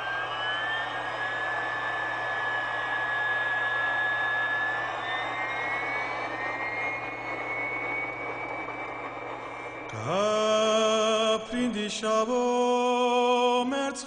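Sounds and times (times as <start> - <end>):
jet engine rush and whine: 0.0 - 10.9.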